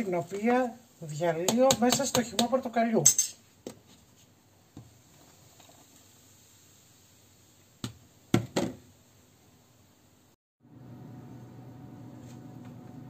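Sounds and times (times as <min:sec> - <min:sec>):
juice pouring hiss: 0:04.8 - 0:08.3.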